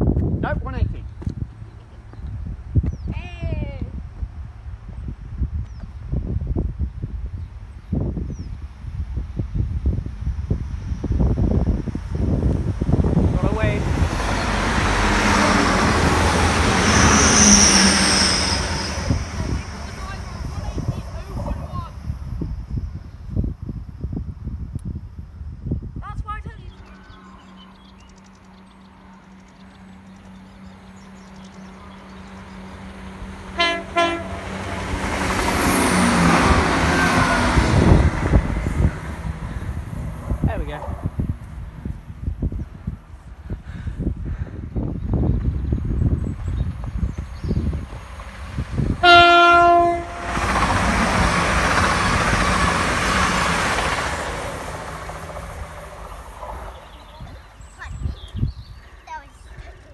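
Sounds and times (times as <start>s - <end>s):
diesel train engine: 8.6s - 59.9s
train horn blasts: 33.5s - 34.9s, 49.0s - 50.9s
wheels on rails: 50.0s - 59.9s.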